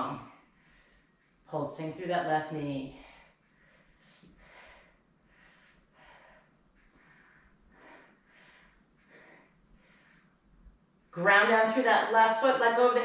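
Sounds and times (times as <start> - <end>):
person breathing: 3.0 - 10.5.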